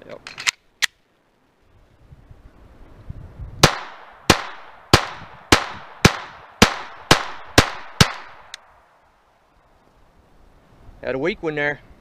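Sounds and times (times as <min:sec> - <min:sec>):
pistol shots: 0:03.6 - 0:08.6.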